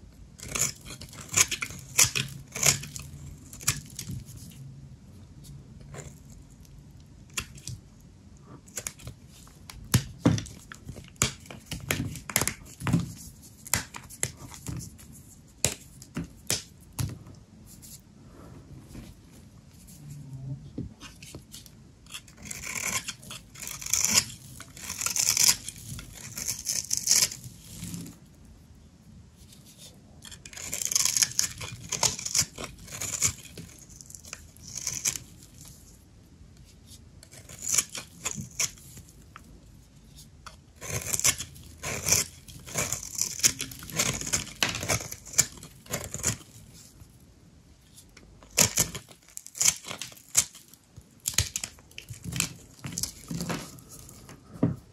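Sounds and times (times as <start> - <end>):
knife cutting dry soap: 0.4 - 4.6, 8.6 - 16.8, 21.0 - 28.2, 29.5 - 35.7, 36.6 - 39.4, 40.0 - 46.9, 48.0 - 54.3.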